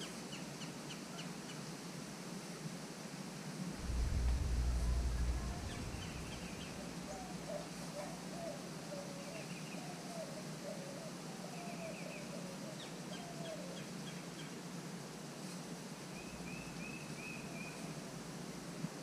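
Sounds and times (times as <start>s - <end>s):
steady low hum: 3.7s - 7.9s.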